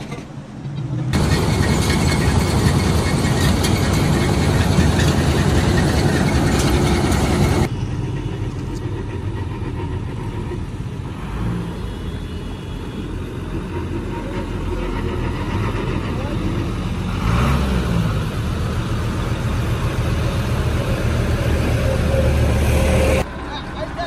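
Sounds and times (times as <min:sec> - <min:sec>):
heavy diesel engine running: 0:00.7 - 0:24.0
diesel truck engine idling: 0:01.1 - 0:11.4, 0:17.9 - 0:24.0.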